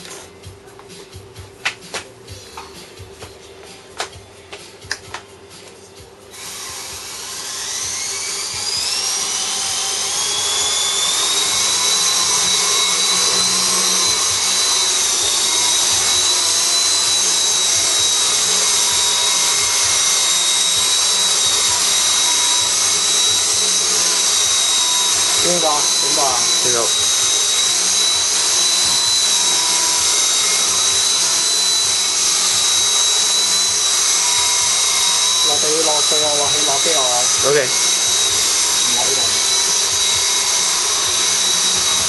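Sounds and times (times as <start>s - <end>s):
rc helicopter rotor whine: 6.3s - 42.0s.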